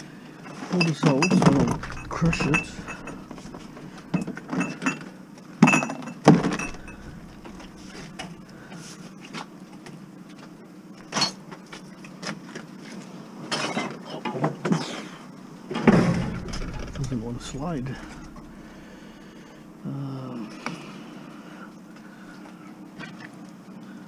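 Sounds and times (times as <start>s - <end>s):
loud thumps: 1.5s - 4.2s, 6.3s - 8.8s, 15.9s - 19.6s
metal tank knocking and scraping: 1.5s - 4.3s, 6.3s - 8.8s, 15.9s - 19.3s.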